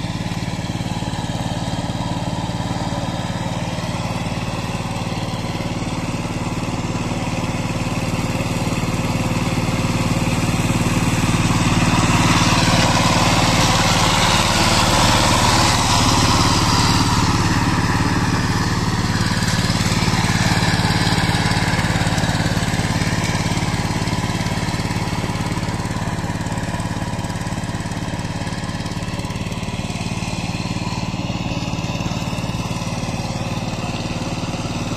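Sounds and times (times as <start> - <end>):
diesel tiller engine running: 0.0 - 34.9
rotavator churning mud: 8.3 - 34.9.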